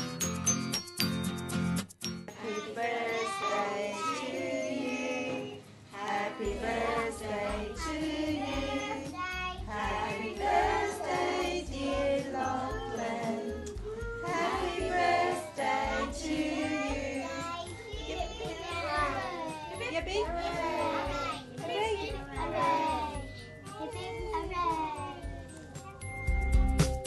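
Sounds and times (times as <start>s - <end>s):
group of voices singing: 2.3s - 19.5s, 20.2s - 23.3s.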